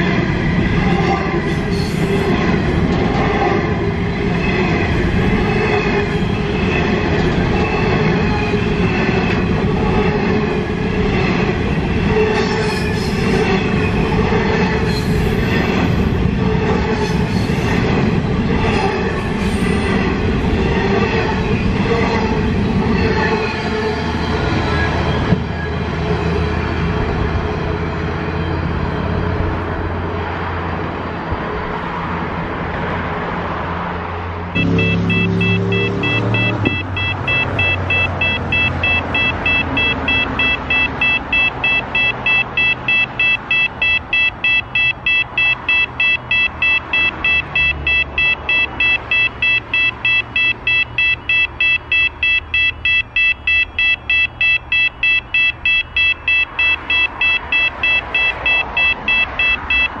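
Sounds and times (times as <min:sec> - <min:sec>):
level crossing warning bell: 0:34.6 - 1:00.0.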